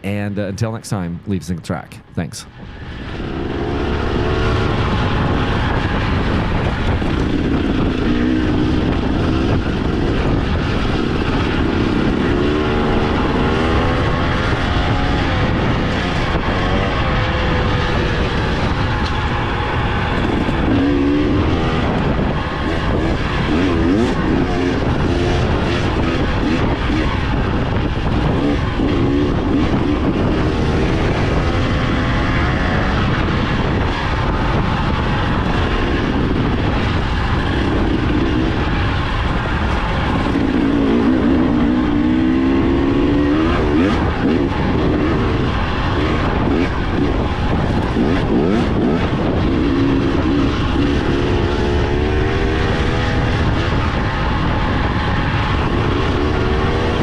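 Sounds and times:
two-stroke dirt bike engine revving: 0:03.2 - 0:57.0.

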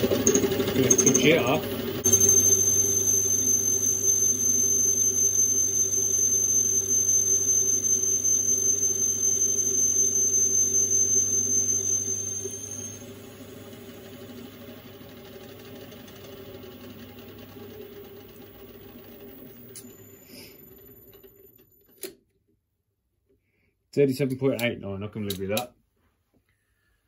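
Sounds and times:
metal lathe whining: 0:00.0 - 0:21.0
lathe motor running: 0:00.0 - 0:21.1.

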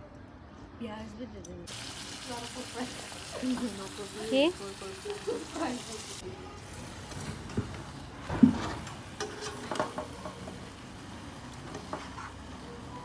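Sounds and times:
food sizzling: 0:01.7 - 0:13.0
metal spatula scraping a wok: 0:08.6 - 0:10.0.

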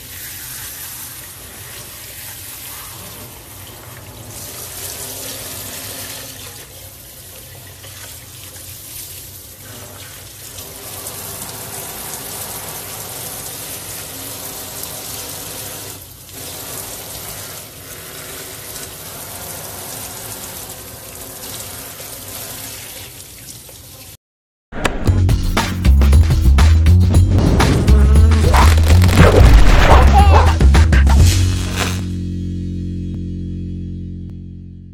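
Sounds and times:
water spraying into sink: 0:09.6 - 0:23.3.

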